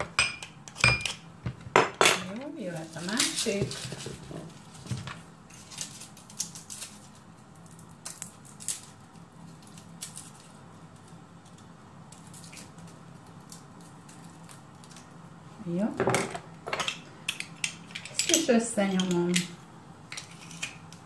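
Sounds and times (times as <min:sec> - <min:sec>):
knife scraping garlic: 0:20.1 - 0:21.0.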